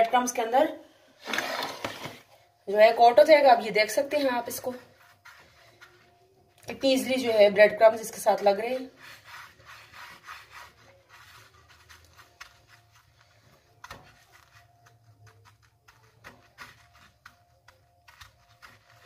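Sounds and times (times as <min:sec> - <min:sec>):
hand scraping in breadcrumbs: 0:04.2 - 0:06.3, 0:08.4 - 0:19.0.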